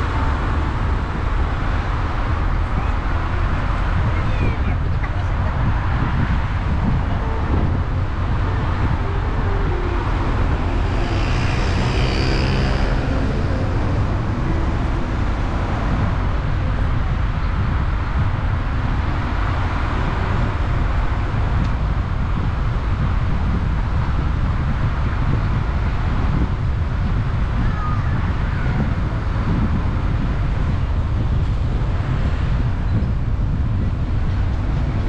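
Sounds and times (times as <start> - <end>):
passing engine: 0.0 - 27.6
car road and wind rumble: 0.0 - 35.0.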